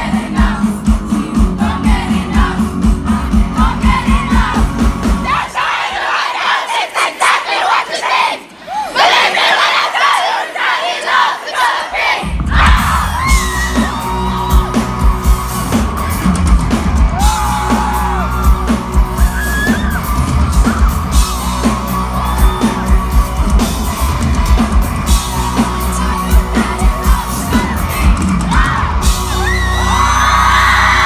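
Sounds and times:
live pop band playing: 0.0 - 5.5, 12.3 - 31.0
crowd yelling: 3.6 - 31.0.

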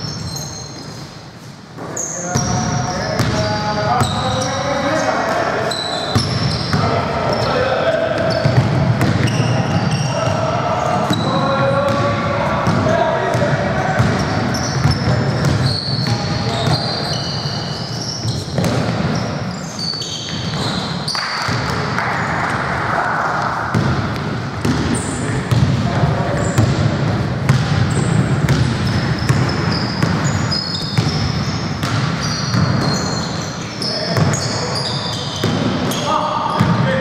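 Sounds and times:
sneaker squeaks: 0.0 - 22.6, 23.6 - 37.0
basketball bouncing: 8.2 - 9.6, 18.3 - 19.2, 20.2 - 22.6, 23.7 - 33.1, 34.1 - 34.5, 35.3 - 35.9.

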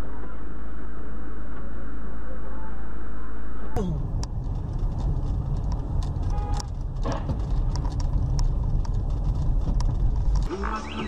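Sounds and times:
car cabin road rumble: 3.8 - 11.0
clicks and rattles: 4.2 - 10.5.

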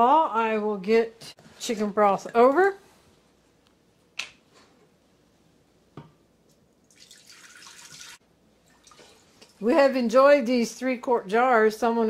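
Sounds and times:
broth pouring into pot: 6.8 - 9.6.

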